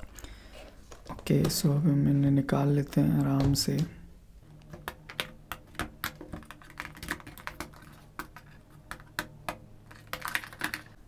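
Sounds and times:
plastic earphones clicking: 4.6s - 11.0s.

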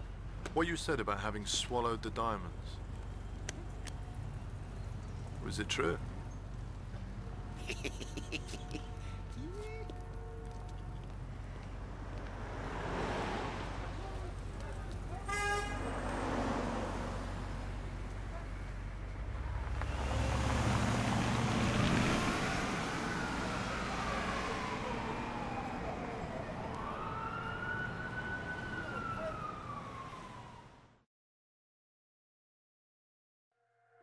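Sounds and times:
city street traffic: 0.0s - 31.0s
car driving by: 12.2s - 14.2s, 15.4s - 17.8s, 19.3s - 25.7s
emergency siren wailing: 19.9s - 31.0s.

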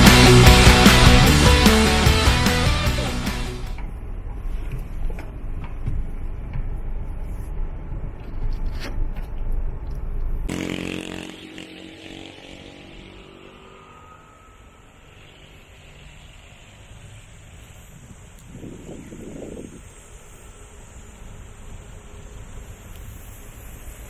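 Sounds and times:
outdoor background noise: 3.6s - 24.0s
car passing by: 10.6s - 18.2s.

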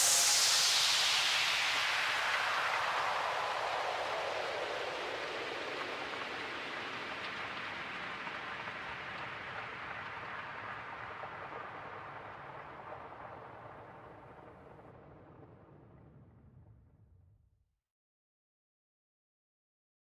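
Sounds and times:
descending hiss sweep: 0.0s - 5.8s.

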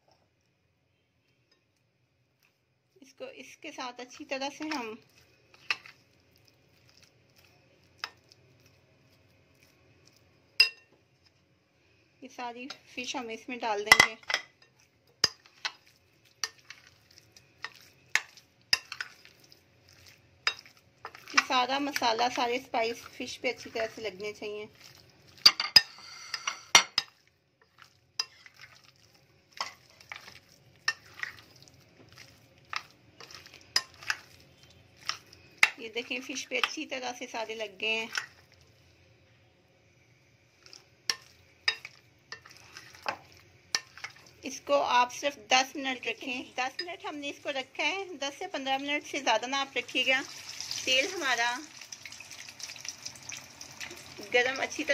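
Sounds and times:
spoon stirring thick paste: 2.4s - 11.4s, 12.6s - 39.0s, 40.4s - 50.1s
metal spoon clinking glass bowl: 10.6s - 10.9s, 20.4s - 21.5s, 25.4s - 27.2s.

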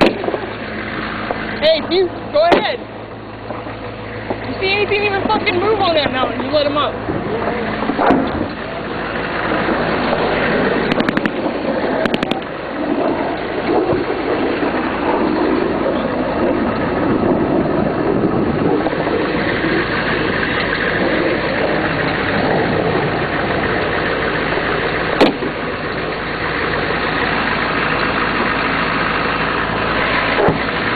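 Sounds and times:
military vehicle engine running: 0.0s - 30.9s
sharp bang: 2.4s - 3.6s, 6.5s - 8.5s.

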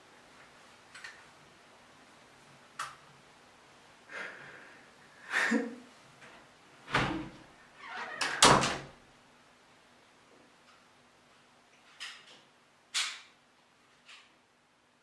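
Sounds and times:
door slamming: 6.9s - 7.4s, 8.2s - 8.9s
door thud: 6.9s - 7.4s
door scraping: 6.9s - 8.8s.

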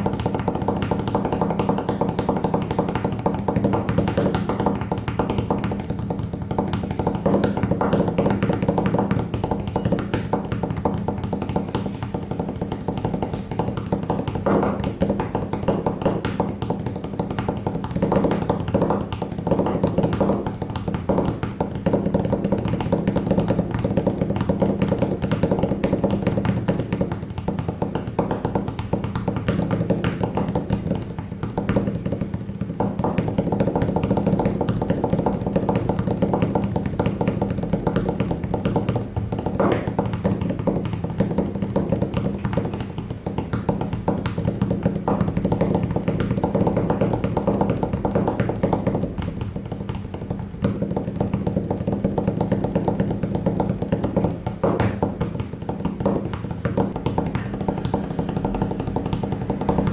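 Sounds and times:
quick tapping percussion: 0.0s - 59.9s.

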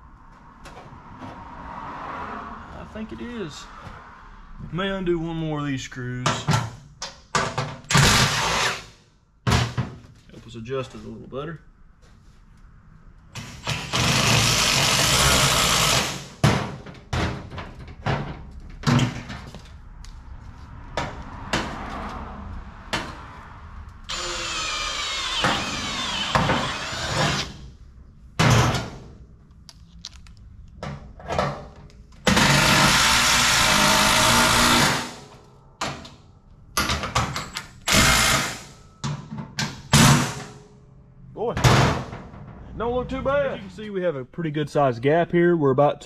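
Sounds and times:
cordless drill turning screws: 13.6s - 16.2s, 24.1s - 27.6s, 32.3s - 35.0s, 37.9s - 38.6s.

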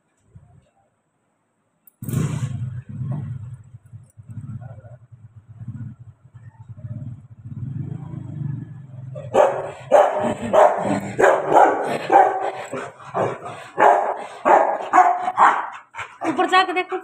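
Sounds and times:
dog barking: 9.2s - 16.4s.

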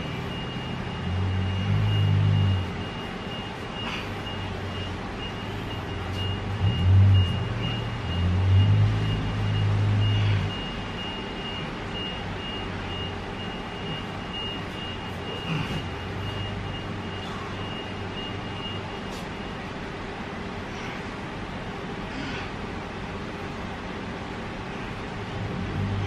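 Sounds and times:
high-pitched whine: 0.0s - 20.0s
background hum: 0.0s - 26.0s
vehicle engines rumbling: 0.0s - 26.0s.

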